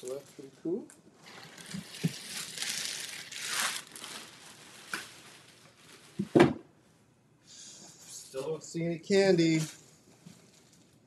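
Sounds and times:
plastic bag crinkling: 1.2s - 6.4s.

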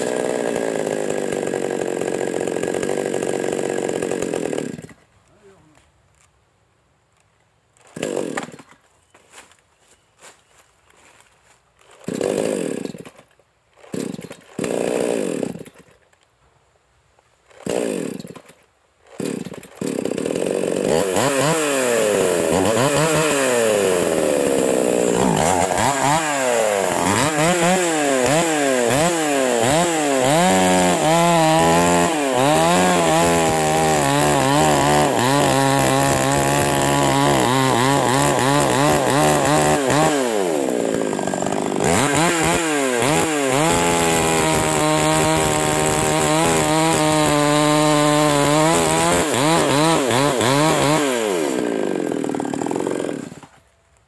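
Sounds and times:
chainsaw engine revving: 0.0s - 5.0s, 7.8s - 8.7s, 11.8s - 15.9s, 17.5s - 53.6s
chainsaw pull-start bursts: 0.0s - 5.0s, 7.8s - 8.8s, 11.8s - 16.1s, 17.5s - 53.7s
chainsaw cutting wood: 0.0s - 5.1s, 7.8s - 9.5s, 11.8s - 16.2s, 17.4s - 53.7s.

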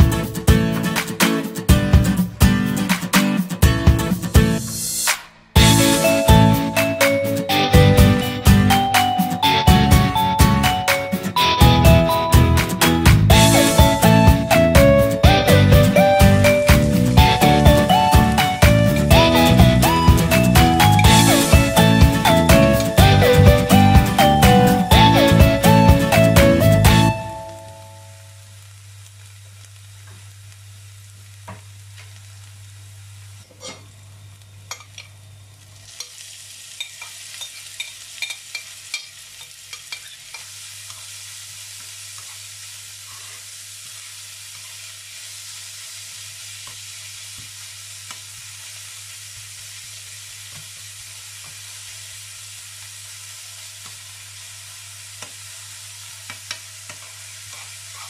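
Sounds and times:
meat and onions sizzling: 3.7s - 58.0s
metal spoon scraping a pan: 33.5s - 33.9s, 36.8s - 41.1s, 56.9s - 58.0s.

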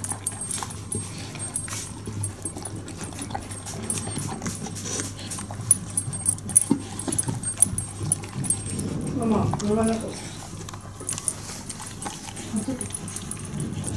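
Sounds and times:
dog chewing and lapping: 0.0s - 13.9s
teeth and collar clicking on bowl: 0.0s - 13.9s.

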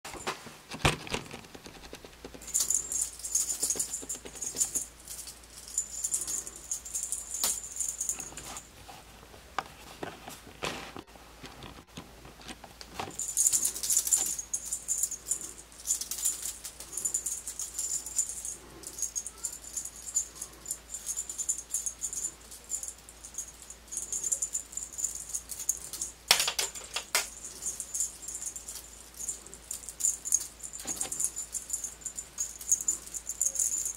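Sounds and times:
small jingle bell shaken: 2.4s - 8.6s, 13.1s - 33.9s.

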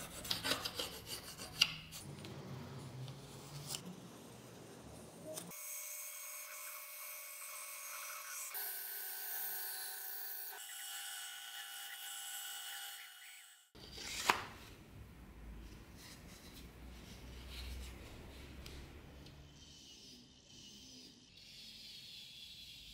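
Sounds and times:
band saw cutting wood: 5.5s - 13.7s.

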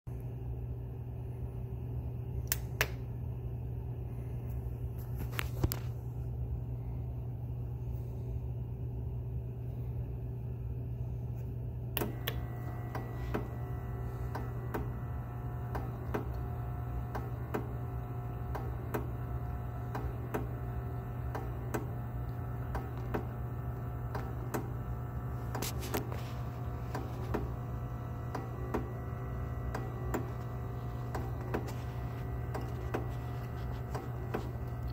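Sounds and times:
switch clicks: 2.4s - 3.1s, 12.0s - 13.5s
coffee brewer humming: 11.7s - 34.9s.

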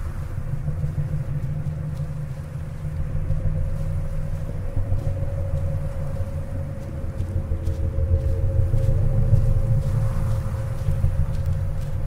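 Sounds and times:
faint steady hum: 0.0s - 12.0s
wind buffeting microphone: 0.0s - 12.0s.

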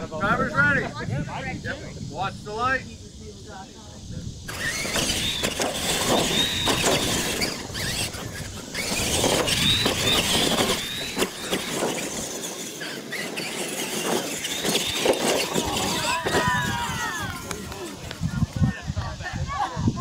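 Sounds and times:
electric motor and gear whine: 4.2s - 18.8s
tyres rushing on dirt: 4.5s - 19.6s.

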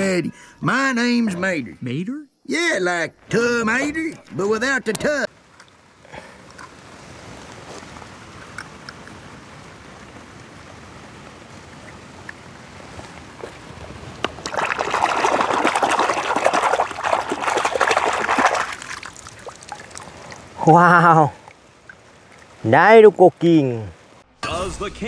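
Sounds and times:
water splashing and sloshing: 5.4s - 22.8s.

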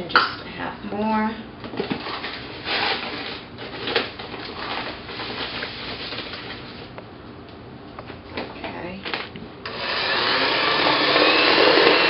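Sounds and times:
paper bag rustling: 1.9s - 6.9s.

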